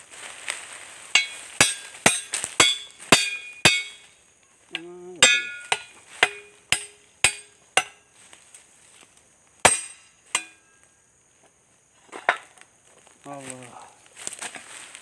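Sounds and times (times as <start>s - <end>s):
machete striking wooden stake: 1.1s - 4.1s, 4.7s - 8.1s, 9.6s - 10.8s.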